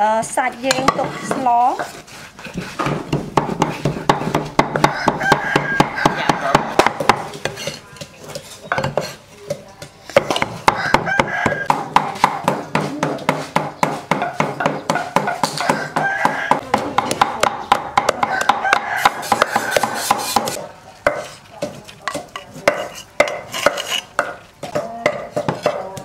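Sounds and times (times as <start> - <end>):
cleaver chopping on wooden block: 2.8 - 7.3, 10.2 - 25.9.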